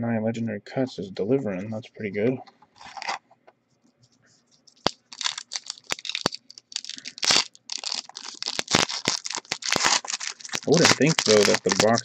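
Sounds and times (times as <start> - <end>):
foil wrapper crinkling and tearing: 2.8 - 3.2, 4.8 - 12.0.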